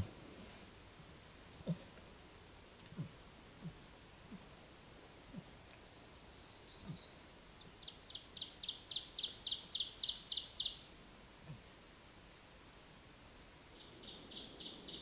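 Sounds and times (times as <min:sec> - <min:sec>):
songbird singing: 0:05.3 - 0:10.9, 0:13.7 - 0:15.0.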